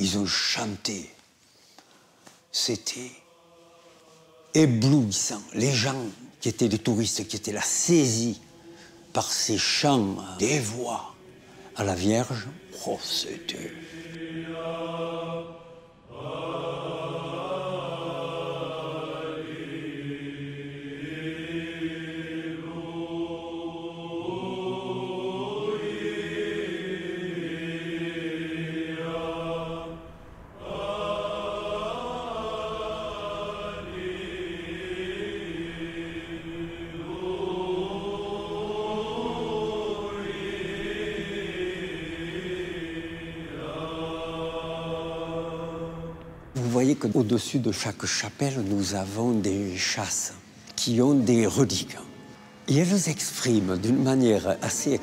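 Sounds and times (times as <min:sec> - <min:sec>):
voices chanting a slow melody: 0:00.0 - 0:55.0.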